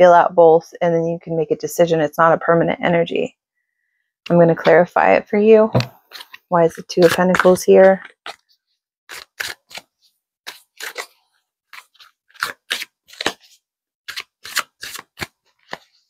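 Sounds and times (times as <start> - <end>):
cards being shuffled: 5.8 - 8.5, 9.1 - 16.0.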